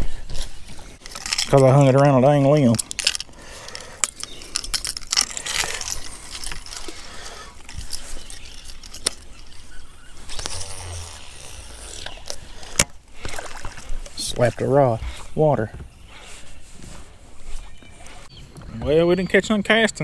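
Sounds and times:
fishing tackle clicking and rattling: 1.0 - 13.9.

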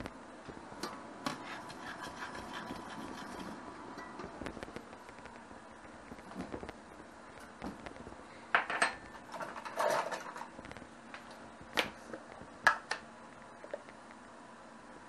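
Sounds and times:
utensil scraping: 1.2 - 3.6.

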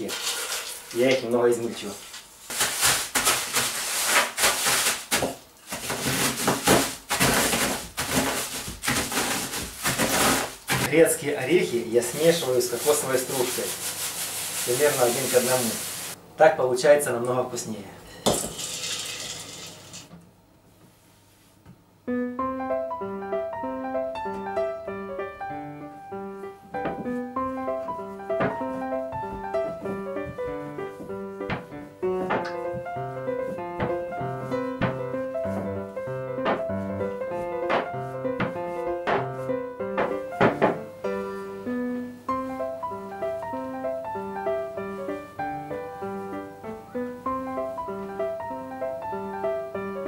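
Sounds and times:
nuts poured into steel pot: 0.0 - 1.3, 18.3 - 20.1
rolling pin crushing walnuts in bag: 0.0 - 10.9
piano music: 6.0 - 16.4, 22.0 - 50.0.

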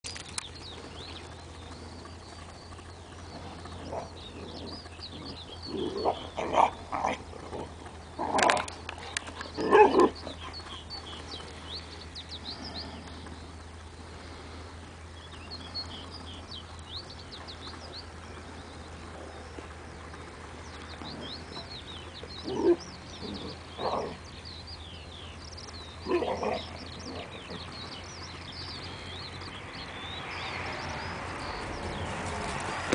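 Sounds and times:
birds chirping: 0.0 - 32.9
dogs growling and barking: 3.8 - 10.9, 22.4 - 24.2, 26.0 - 27.6.

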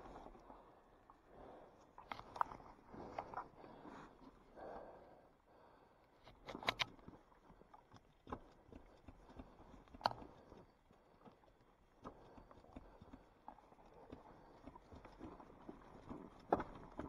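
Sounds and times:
light clicks and knocks: 6.2 - 17.0.

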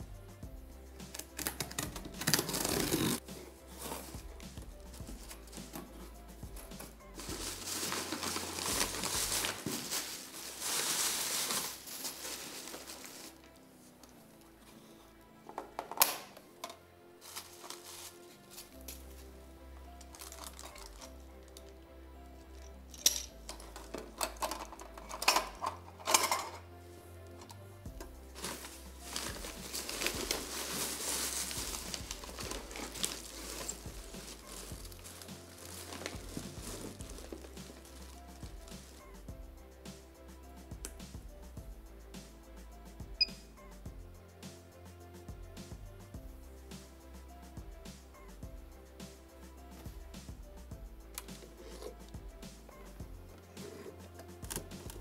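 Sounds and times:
packing paper rustling: 1.1 - 3.2, 7.2 - 13.6, 17.2 - 19.0, 20.2 - 21.0, 28.3 - 39.1.

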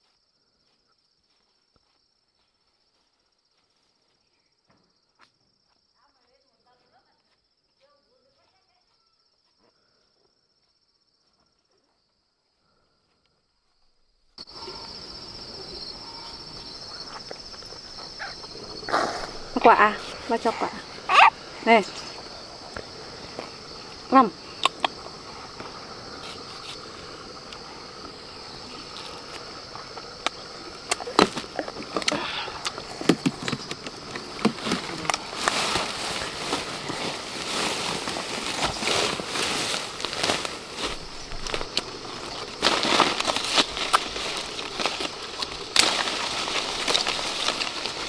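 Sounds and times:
insects chirring: 0.0 - 48.0
dense rustling noise: 32.8 - 48.0.

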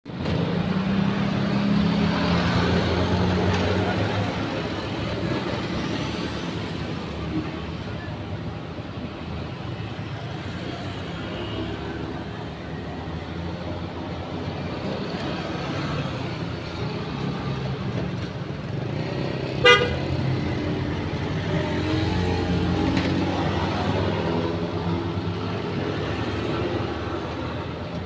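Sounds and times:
road traffic passing: 0.1 - 28.0
car horn beep: 19.6 - 20.1.

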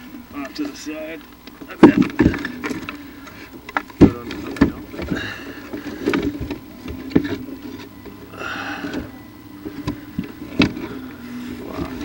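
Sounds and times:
knocks and clunks of tools: 1.4 - 8.2, 8.8 - 11.1.

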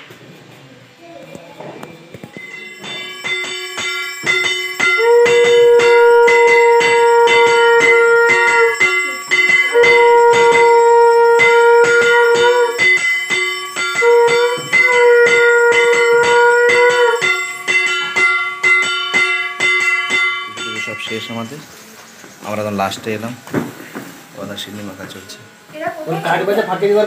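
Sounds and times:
conch shell blown: 2.4 - 21.3.

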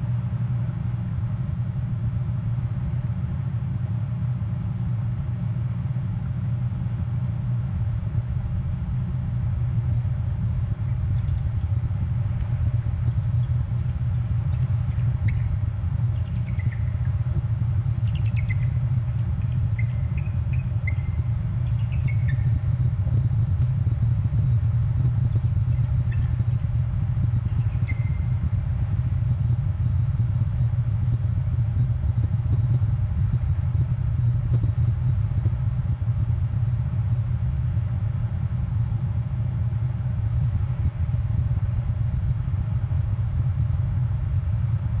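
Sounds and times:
steady low rumble: 0.0 - 45.0
faint high chirps: 12.6 - 17.2, 17.9 - 26.6, 27.2 - 28.6.

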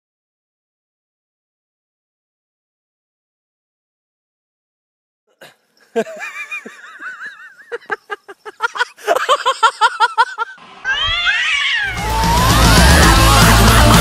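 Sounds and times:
cats yowling: 10.8 - 13.7
loud rock music: 11.9 - 14.0.

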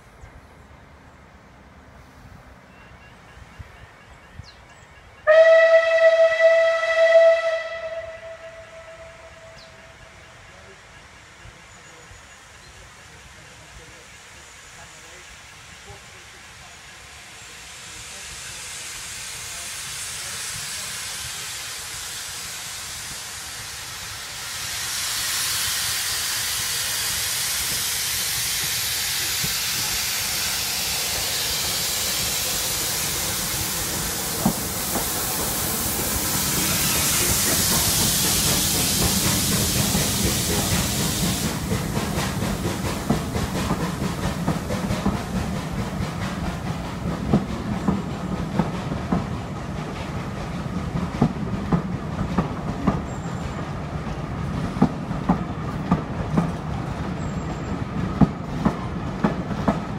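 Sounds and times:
steam locomotive hissing: 5.0 - 59.9
locomotive rumble: 25.9 - 59.9
train wheels clacking over rail joints: 26.0 - 59.9.

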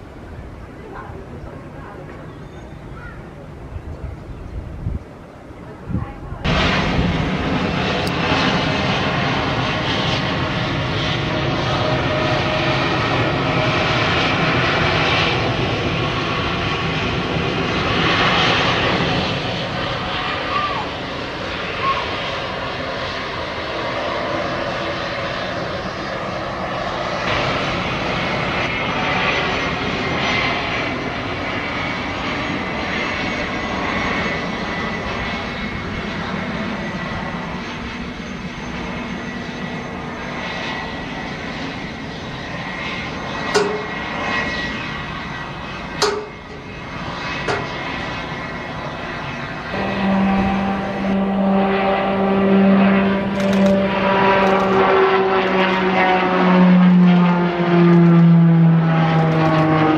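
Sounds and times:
jet engine roar: 0.0 - 59.9
turboprop propeller hum: 0.0 - 59.9
sharp clicks: 53.3 - 53.8.

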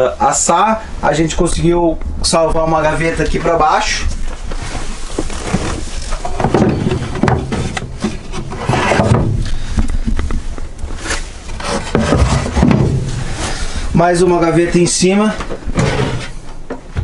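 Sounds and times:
wooden drawer sliding: 5.3 - 9.5, 11.0 - 13.7, 15.7 - 16.5.

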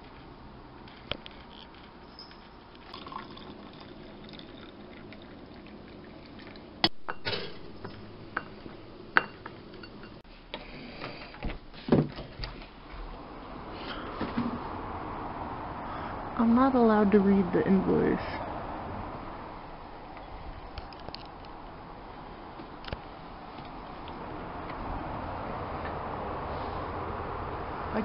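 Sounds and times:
coffee pouring into mug: 1.5 - 8.5.

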